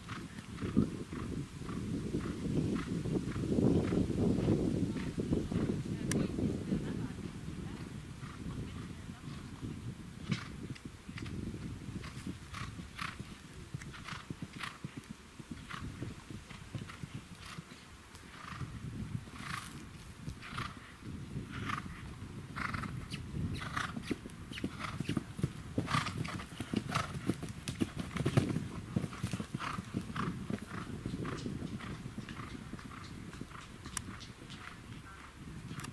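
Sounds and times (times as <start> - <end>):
horse breathing with effort: 22.6 - 33.6
horse hoofbeats on grass: 22.6 - 35.0.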